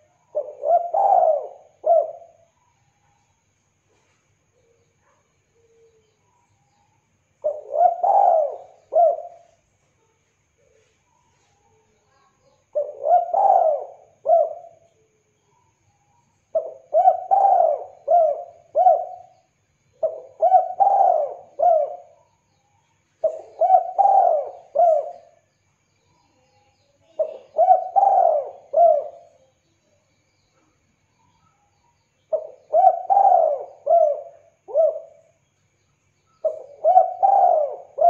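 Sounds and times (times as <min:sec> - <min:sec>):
dove cooing: 0:00.0 - 0:02.6, 0:07.4 - 0:09.6, 0:12.1 - 0:14.9, 0:16.5 - 0:22.3, 0:23.2 - 0:25.5, 0:27.1 - 0:29.5, 0:32.3 - 0:35.4, 0:36.4 - 0:38.0.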